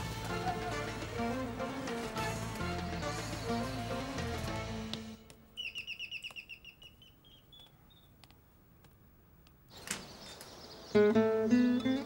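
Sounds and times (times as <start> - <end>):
faint steps on tiled floor: 4.5 - 10.6
high chirps: 5.5 - 8.2.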